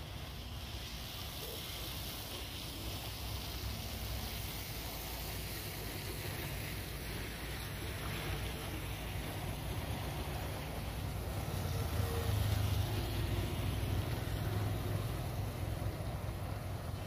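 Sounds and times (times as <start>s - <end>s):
wind hiss: 0.0s - 17.0s
vehicle engine rumble: 3.8s - 17.0s.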